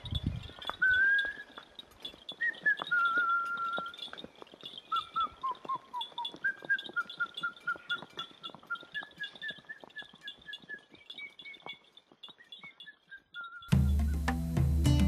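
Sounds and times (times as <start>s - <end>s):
high whistle-like melody: 2.4s - 4.1s, 4.9s - 14.5s.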